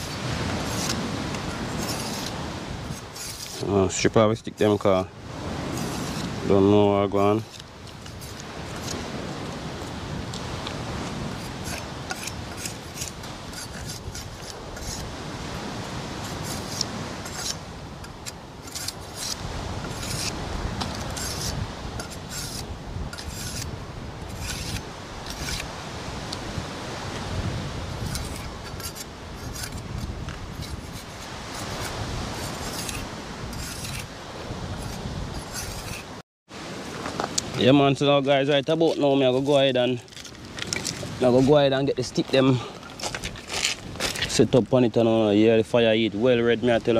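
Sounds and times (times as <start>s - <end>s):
machete scraping bark: 0.0s - 3.8s, 5.6s - 6.4s, 7.2s - 9.0s, 11.3s - 15.1s, 16.2s - 25.8s, 28.0s - 34.1s, 34.8s - 36.2s.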